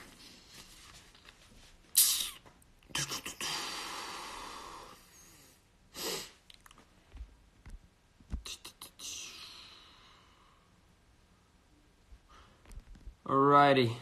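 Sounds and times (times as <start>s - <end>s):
person breathing: 3.4s - 6.4s, 9.0s - 10.8s.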